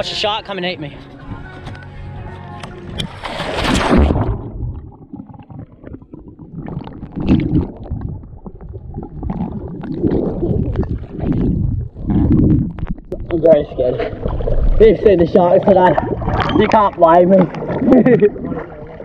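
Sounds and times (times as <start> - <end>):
underwater rumbling and bubbling: 2.9 - 19.0
splash into water: 3.0 - 4.7.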